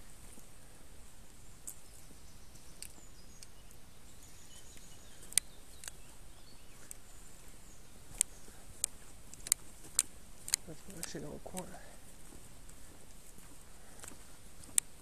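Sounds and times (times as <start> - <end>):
faint steady hiss: 0.0 - 15.0
faint bird chirps: 1.6 - 9.0
sharp clicks: 2.8 - 3.6, 4.7 - 6.0, 8.1 - 11.8.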